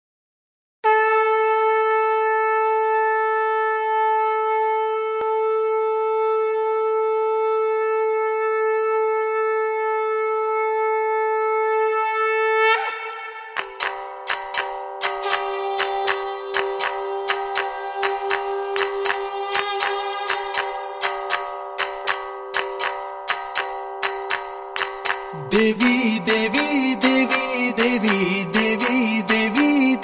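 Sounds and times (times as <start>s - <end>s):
conch shell blown: 0.8s - 13.8s, 15.1s - 21.4s
plucked string music: 13.4s - 30.0s.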